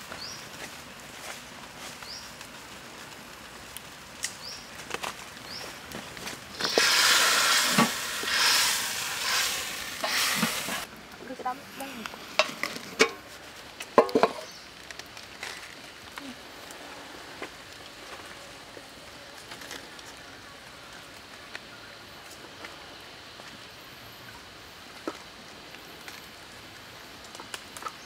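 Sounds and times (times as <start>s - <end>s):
sauce sizzling and bubbling: 5.8s - 11.2s
metal pot clinks and knocks: 14.0s - 14.4s.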